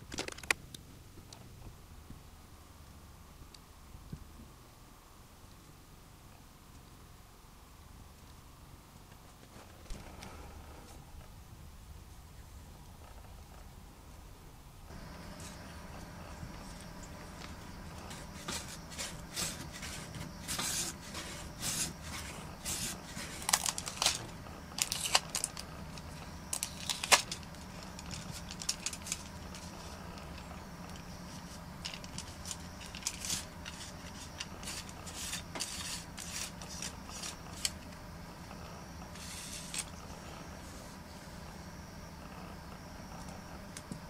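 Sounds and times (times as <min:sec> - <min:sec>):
sanding rasping strokes: 0:33.0 - 0:37.7.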